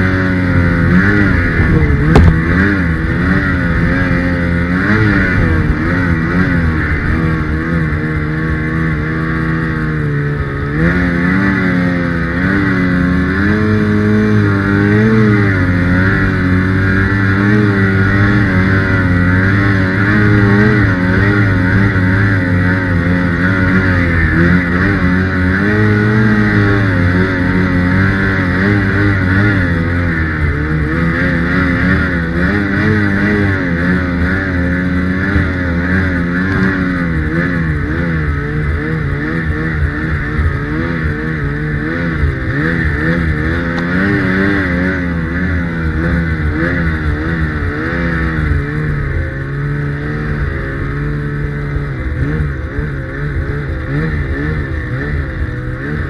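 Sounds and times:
snowmobile engine revving: 0.0 - 56.0.

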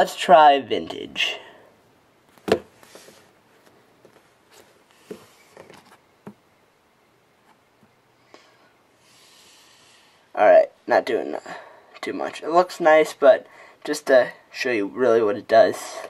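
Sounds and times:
soft hiss: 0.0 - 16.0.

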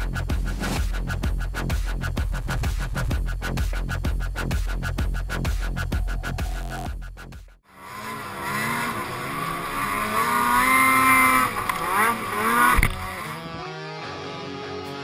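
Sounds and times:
snowmobile engine revving: 7.7 - 13.6.

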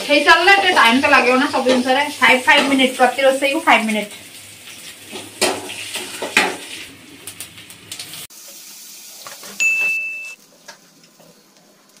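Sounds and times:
greens sizzling in a pan: 0.0 - 9.6
spatula scraping a pan: 0.5 - 2.9, 4.1 - 6.9.

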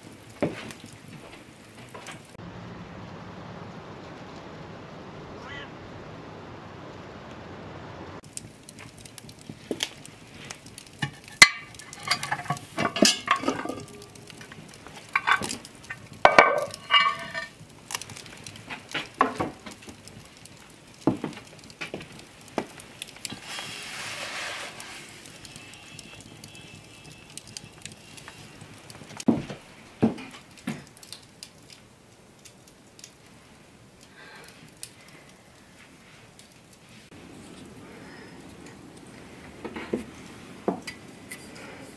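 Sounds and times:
wood fire crackling: 0.0 - 41.9
cast iron pot clanking: 10.7 - 17.6, 18.8 - 19.8.

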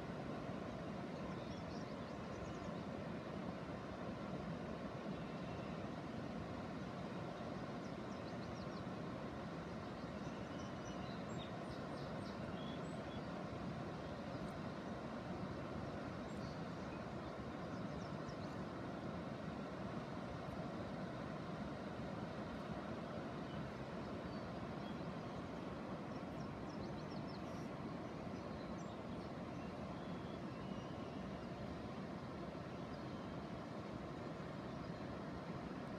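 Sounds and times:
low rushing background noise: 0.0 - 35.9
faint high bird chirps: 28.4 - 31.5.

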